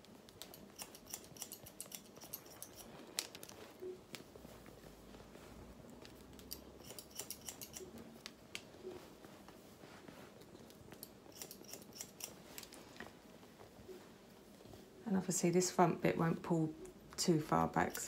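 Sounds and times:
scissors snipping hair: 0.3 - 3.6, 6.0 - 8.6, 10.9 - 12.8, 17.6 - 18.0.

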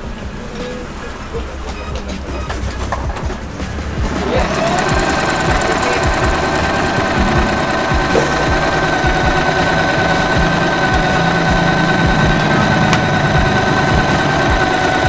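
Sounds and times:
sewing machine motor whine: 4.1 - 15.0.

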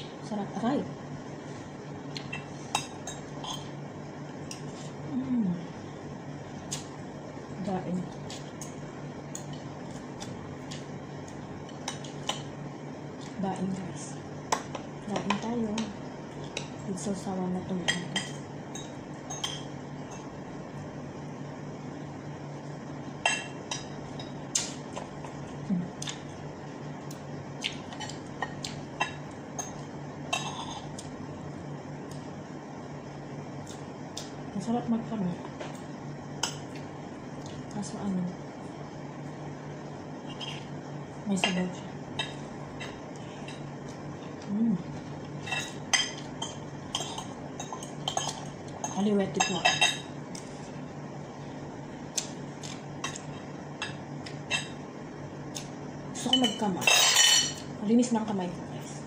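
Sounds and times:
cutlery clinking on dishes: 56.4 - 57.6.

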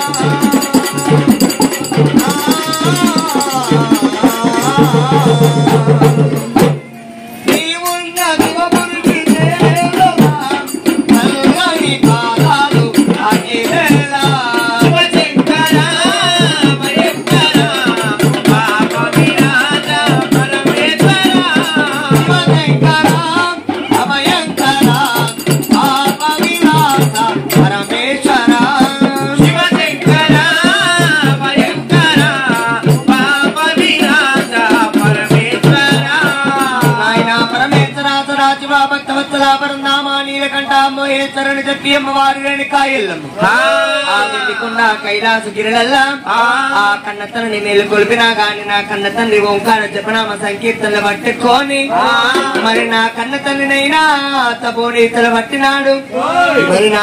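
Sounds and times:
person singing a wavering melody: 0.0 - 37.5
jingling hand cymbals: 0.0 - 38.6
steady drum beat: 0.0 - 39.5, 51.4 - 54.0.

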